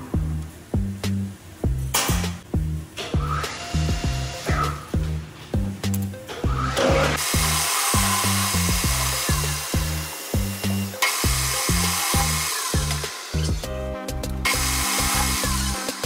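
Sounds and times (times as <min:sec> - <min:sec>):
background music with steady beat: 0:00.0 - 0:16.0
metal lathe running: 0:06.5 - 0:13.6, 0:14.5 - 0:16.0.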